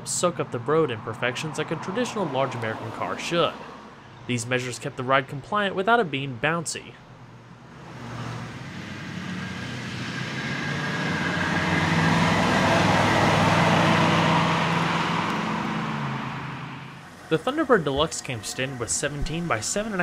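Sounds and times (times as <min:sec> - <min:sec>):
car engine driving past: 0:07.7 - 0:19.6.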